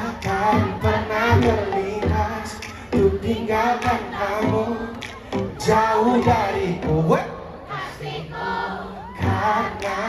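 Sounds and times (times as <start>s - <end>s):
person singing: 0.0s - 7.3s, 9.2s - 10.0s
band with drum beat: 0.1s - 7.0s.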